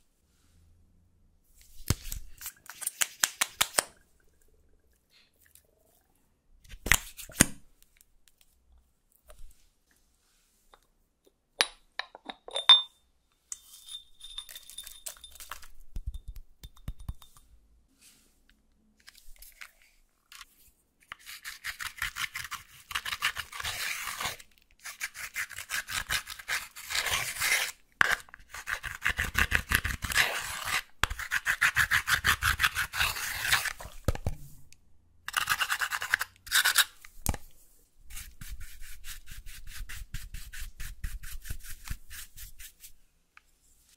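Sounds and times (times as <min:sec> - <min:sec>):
tool rasping powder in palette: 0:21.1 - 0:34.0.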